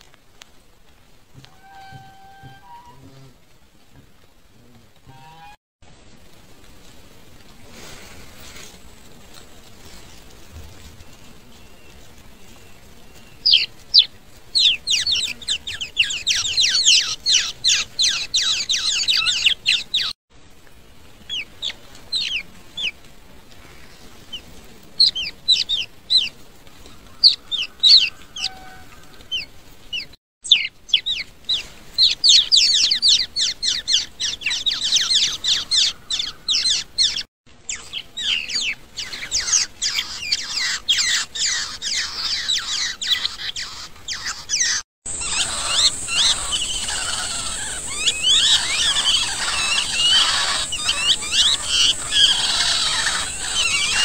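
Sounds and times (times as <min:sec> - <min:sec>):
baby birds chirping: 0:13.2 - 0:20.2, 0:21.3 - 0:22.9, 0:25.0 - 0:26.3, 0:27.2 - 0:54.0.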